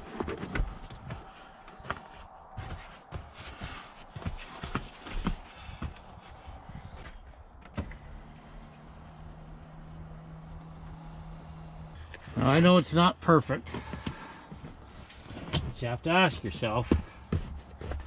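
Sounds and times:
knocks and thumps on rubber mat: 0:00.0 - 0:06.4, 0:16.8 - 0:18.0
low steady hum: 0:00.0 - 0:16.3.

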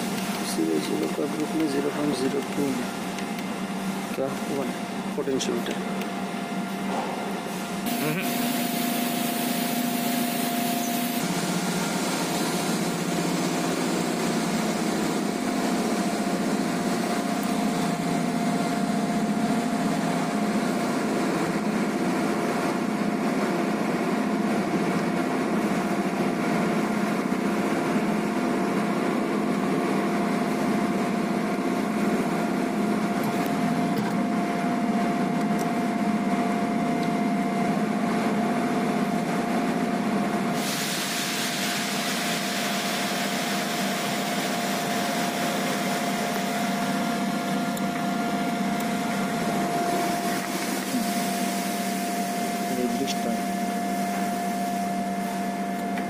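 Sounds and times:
machine drone with whine: 0:00.0 - 0:56.0
hiss: 0:40.6 - 0:45.7.

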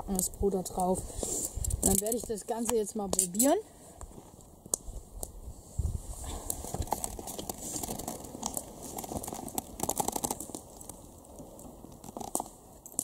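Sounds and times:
chewing crusty toasted bread: 0:06.4 - 0:13.0.

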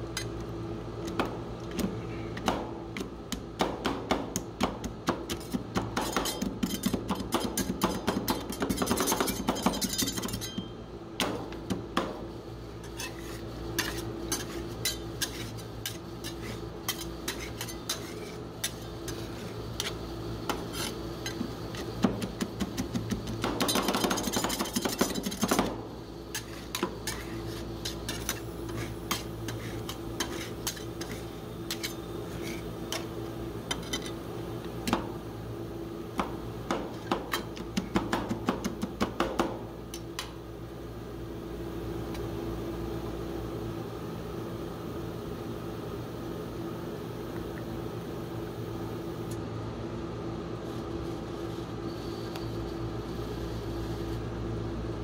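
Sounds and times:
metal spatulas chopping and scraping: 0:03.6 - 0:10.7, 0:12.8 - 0:25.7, 0:26.3 - 0:33.1.

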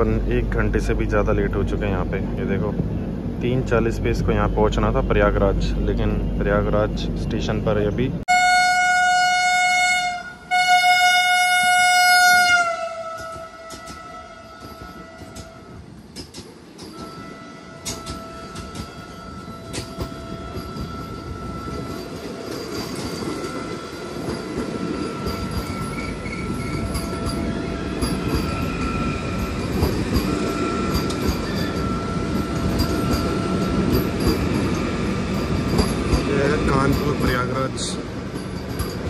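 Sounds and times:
train wheels rumbling on rails: 0:00.0 - 0:08.2, 0:09.0 - 0:39.0
train whine: 0:00.0 - 0:39.0
wheels clacking over rail joints: 0:12.3 - 0:39.0.

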